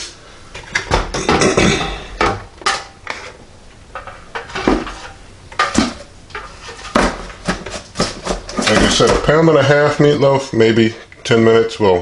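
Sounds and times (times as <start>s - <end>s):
quiet handling noise: 0.5s - 10.3s
plastic knocks and clatters: 4.0s - 9.4s.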